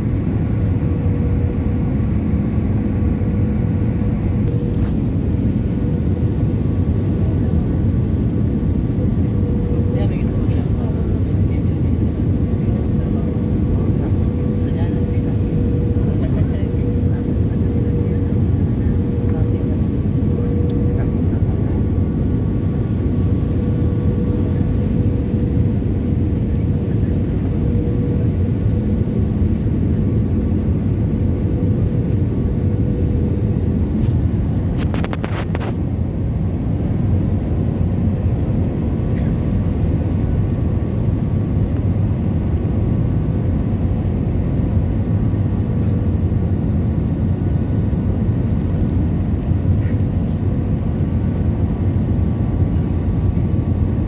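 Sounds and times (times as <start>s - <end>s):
airplane engine rumble: 0.0s - 54.0s.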